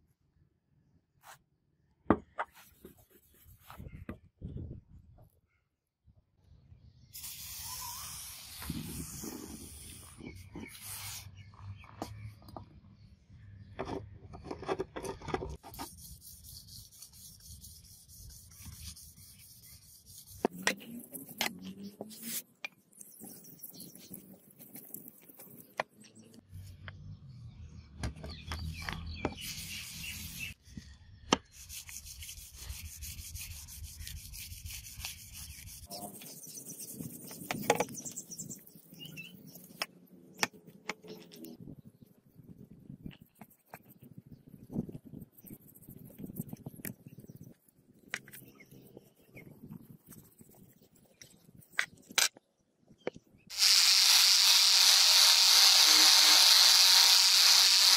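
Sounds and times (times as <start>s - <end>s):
sandpaper rubbing on steel blade: 7.2s - 11.4s, 15.7s - 22.4s, 29.4s - 30.6s, 31.5s - 38.2s, 53.5s - 57.9s.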